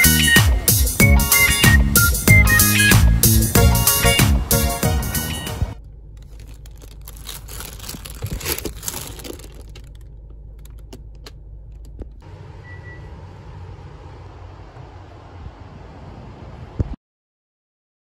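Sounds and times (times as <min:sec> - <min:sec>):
takeout packaging crinkling: 0:05.8 - 0:12.2
steady outdoor hiss: 0:12.2 - 0:17.0.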